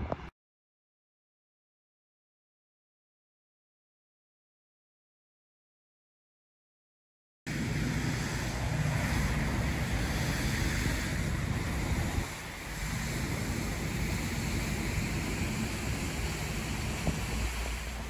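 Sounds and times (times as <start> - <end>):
wind buffeting microphone: 7.5 - 18.0.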